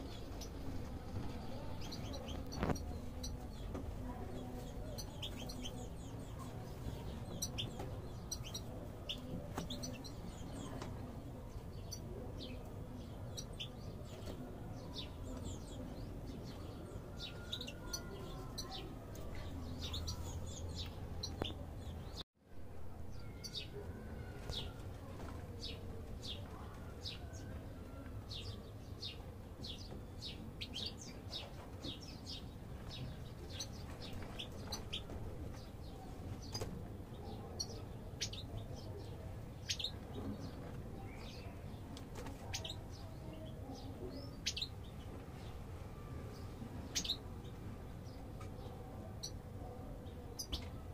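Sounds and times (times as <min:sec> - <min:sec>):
finches chirping and twittering: 0:00.0 - 0:10.9, 0:11.5 - 0:22.2, 0:28.3 - 0:41.8, 0:42.4 - 0:45.5, 0:46.3 - 0:47.2.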